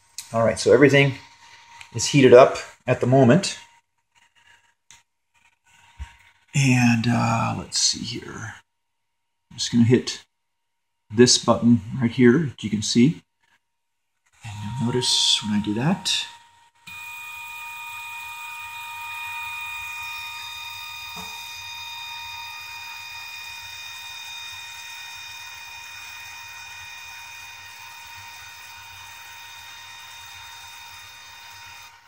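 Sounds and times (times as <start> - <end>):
stepper motor whine: 14.4 - 32.0.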